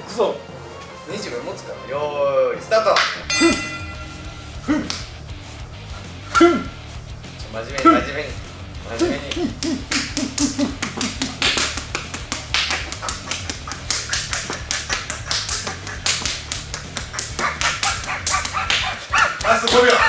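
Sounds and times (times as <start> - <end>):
punches slapping on skin: 4.8 - 5.2, 8.9 - 20.0.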